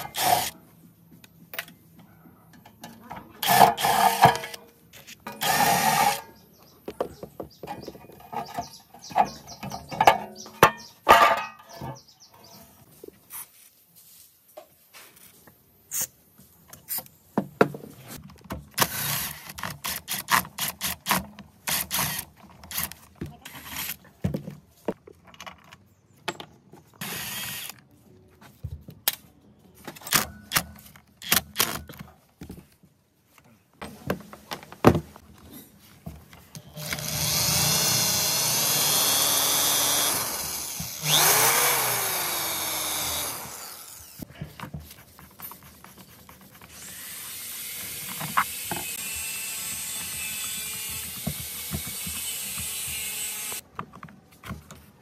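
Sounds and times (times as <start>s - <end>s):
electric drill motor: 0.0s - 0.6s, 5.4s - 6.2s, 27.0s - 27.8s, 36.7s - 44.2s, 46.7s - 53.6s.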